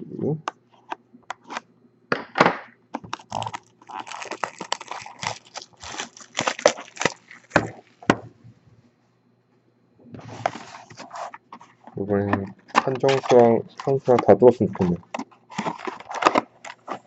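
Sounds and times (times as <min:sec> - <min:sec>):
plastic wrap crackling and rustling: 0:03.1 - 0:08.0, 0:12.7 - 0:17.0.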